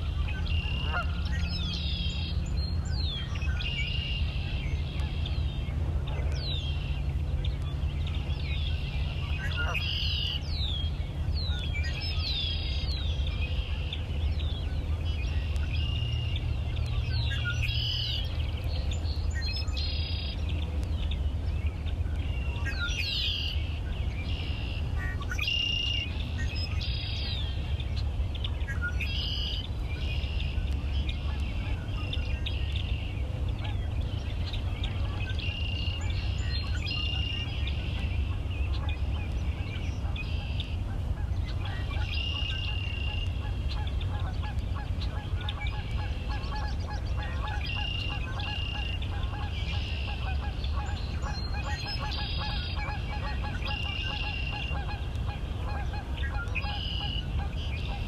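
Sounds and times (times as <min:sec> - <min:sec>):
geese honking: 0:00.0 - 0:02.3, 0:09.2 - 0:10.5, 0:34.8 - 0:58.0
bird calls: 0:00.0 - 0:58.0
steady low rumble: 0:00.0 - 0:58.0.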